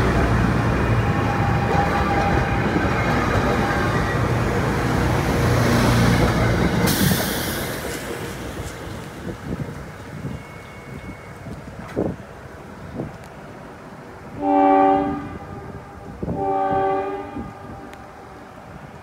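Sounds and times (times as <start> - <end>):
train wheels rumbling on rail: 0.0 - 19.0
rush of hiss: 6.8 - 9.0.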